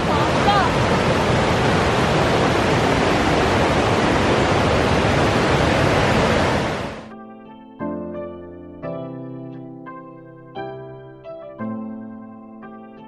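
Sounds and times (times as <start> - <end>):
rushing river water: 0.0 - 7.1
soft piano music: 7.1 - 13.0.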